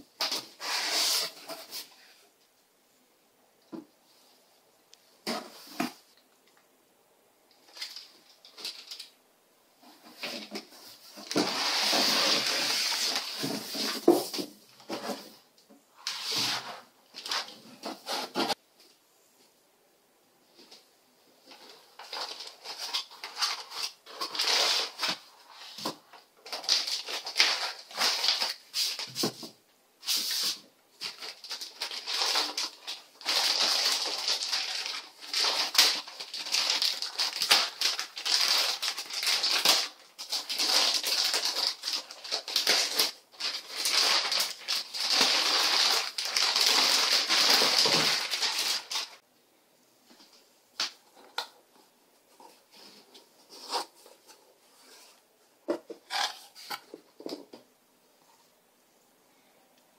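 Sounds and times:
plastic packaging crinkling: 0:07.6 - 0:09.2, 0:11.1 - 0:14.4, 0:21.6 - 0:29.2, 0:30.2 - 0:49.2.

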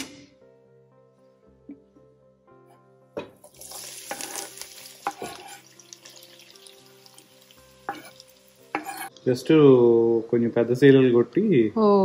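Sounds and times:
faint background music: 0:00.0 - 0:12.0
onions sizzling in hot oil: 0:03.4 - 0:09.1.

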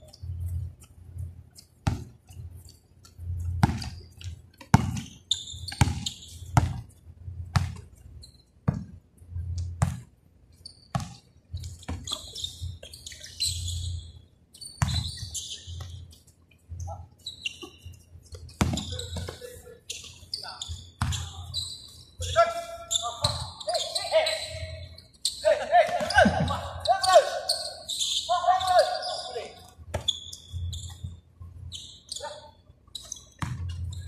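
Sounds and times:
basketball bouncing on a court: 0:01.8 - 0:02.4, 0:03.4 - 0:06.9, 0:07.5 - 0:07.9, 0:08.6 - 0:09.0, 0:09.6 - 0:10.1, 0:10.9 - 0:12.3, 0:14.8 - 0:16.0, 0:18.4 - 0:19.4, 0:20.7 - 0:21.4, 0:33.3 - 0:34.0.

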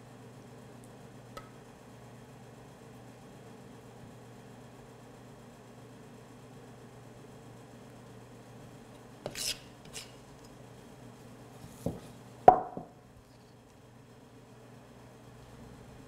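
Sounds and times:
faint steady hum: 0:00.0 - 0:16.0
spoon scraping dough in bowl: 0:09.2 - 0:10.2
knock: 0:11.9 - 0:12.9.

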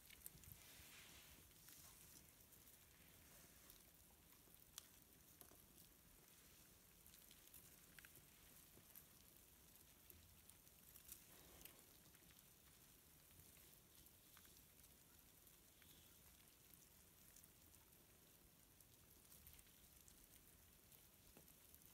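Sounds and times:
faint steady hiss: 0:00.0 - 0:21.9
tiny ticks: 0:03.7 - 0:06.0.

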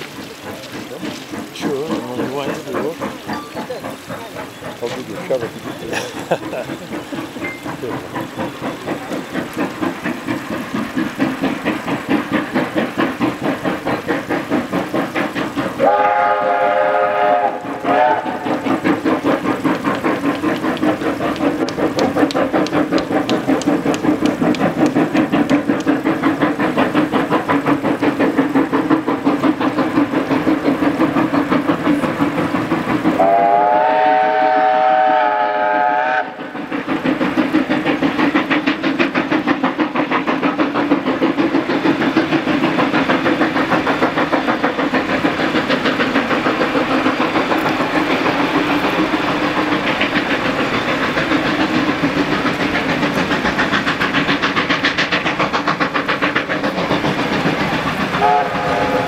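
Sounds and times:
steam locomotive exhaust beating: 0:00.0 - 0:59.0
steam whistle chord: 0:15.8 - 0:18.4, 0:33.2 - 0:36.3, 0:58.2 - 0:59.0.

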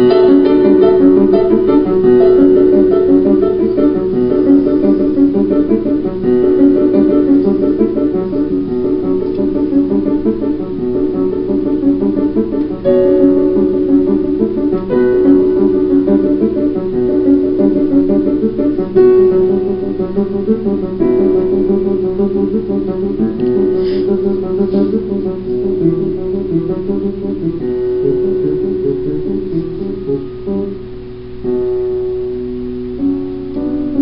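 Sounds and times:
plucked strings over held note: 0:23.2 - 0:30.6.

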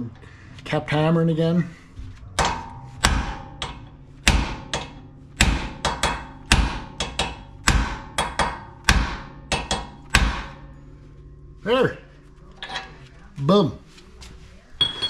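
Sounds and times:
hammer striking steel: 0:02.3 - 0:10.9.

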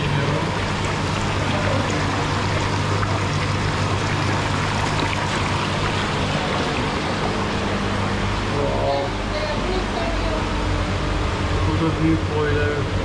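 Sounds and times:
water running and trickling: 0:00.0 - 0:09.4
steady low hum: 0:00.0 - 0:13.0.

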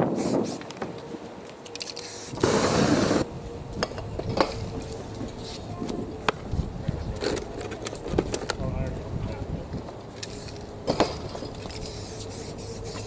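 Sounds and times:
spray paint hissing: 0:00.0 - 0:00.8, 0:01.8 - 0:03.3, 0:10.2 - 0:10.7, 0:11.7 - 0:13.0.

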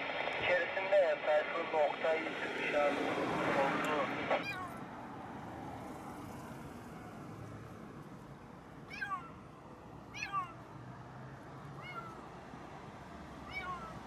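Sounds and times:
kitten meowing: 0:04.4 - 0:04.8, 0:08.9 - 0:09.4, 0:10.1 - 0:10.6, 0:11.8 - 0:12.2, 0:13.4 - 0:14.0.

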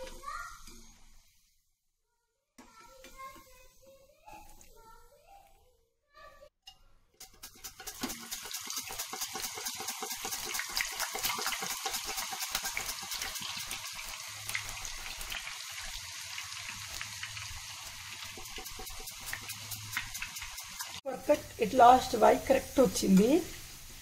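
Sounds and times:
hot oil sizzling and crackling: 0:07.2 - 0:24.0.

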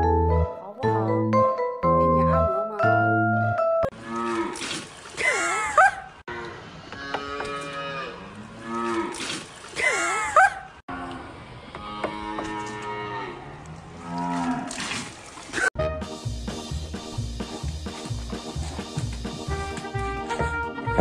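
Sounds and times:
bell-like mallet music: 0:00.0 - 0:03.9
calf mooing: 0:06.3 - 0:09.1.

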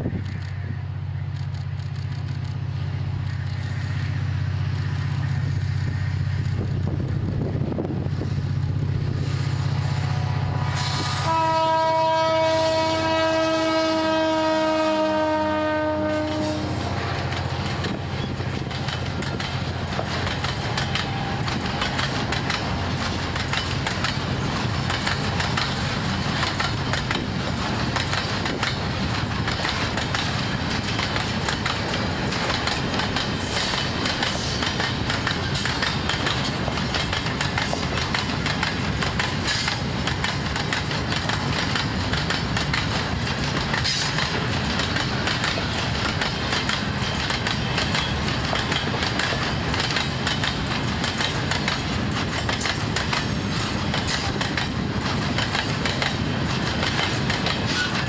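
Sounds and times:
locomotive engine drone: 0:00.0 - 0:58.0
train horn: 0:10.0 - 0:17.3, 0:20.7 - 0:22.2
freight cars clattering on rails: 0:16.1 - 0:58.0.

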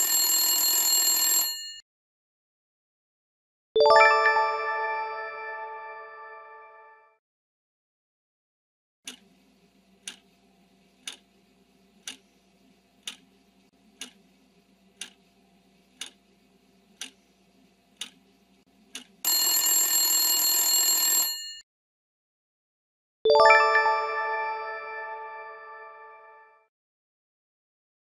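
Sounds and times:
ringing alarm bell: 0:00.0 - 0:01.8, 0:19.3 - 0:21.6
clock ticking: 0:09.1 - 0:09.3, 0:10.0 - 0:10.3, 0:11.0 - 0:11.3, 0:12.0 - 0:12.2, 0:13.0 - 0:13.3, 0:14.0 - 0:14.2, 0:15.0 - 0:15.2, 0:16.0 - 0:16.2, 0:17.0 - 0:17.2, 0:18.0 - 0:18.2, 0:18.9 - 0:19.2.

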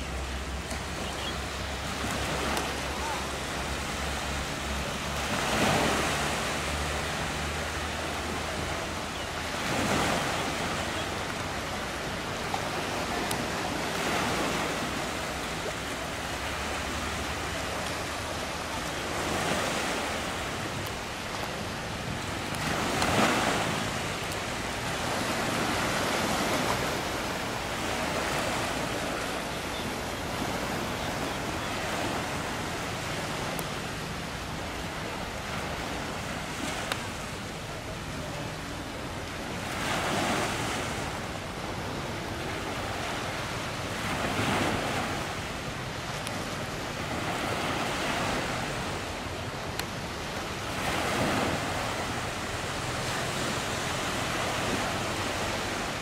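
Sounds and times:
sea waves washing: 0:00.0 - 0:56.0.

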